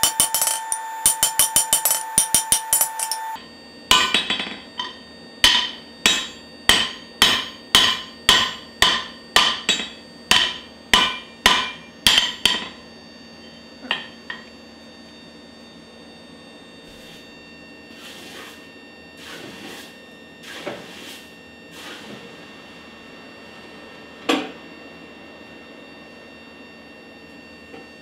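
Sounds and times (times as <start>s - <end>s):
hammer striking steel on anvil: 0.0s - 12.8s.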